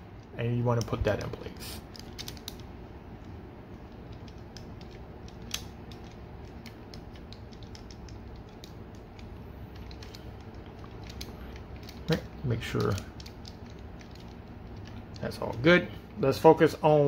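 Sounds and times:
steady low background hum: 0.0 - 17.0
plastic toy parts creaking: 0.7 - 2.7, 3.9 - 15.8
ratcheting toy joints clicking: 1.9 - 2.7, 3.9 - 15.7.

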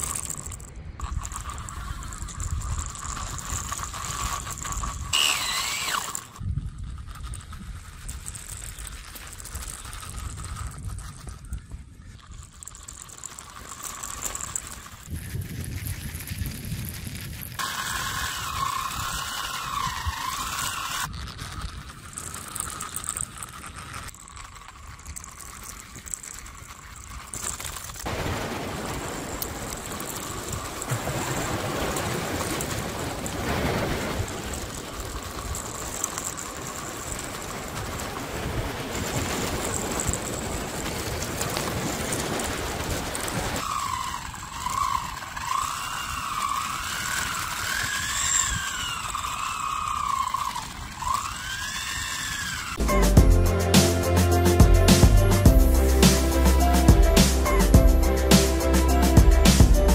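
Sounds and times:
wavering whine: 0.0 - 7.4, 17.6 - 27.5, 43.2 - 59.9
toy car electric motors running: 0.0 - 28.1, 29.0 - 59.9.

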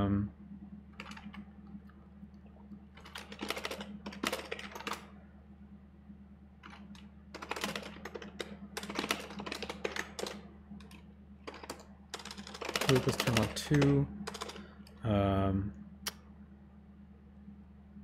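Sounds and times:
steady low hum: 0.0 - 18.0
fast keyboard typing: 1.0 - 1.5, 3.0 - 5.1, 6.6 - 14.7.

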